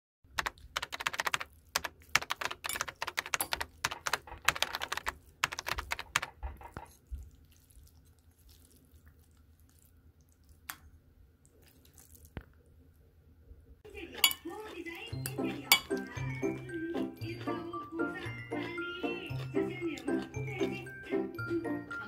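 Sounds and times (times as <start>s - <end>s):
keyboard typing clicks: 0.3s - 6.9s.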